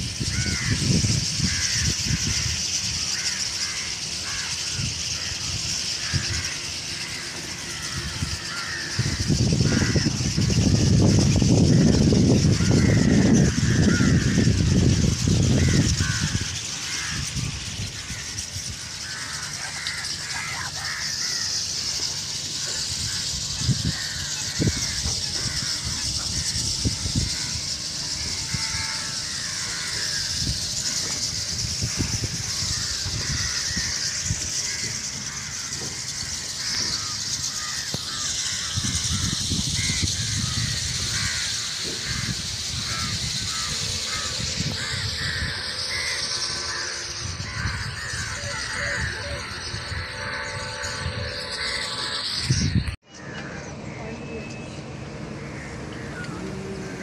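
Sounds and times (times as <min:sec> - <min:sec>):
flock of starlings chirping: 0:00.0 - 0:57.0.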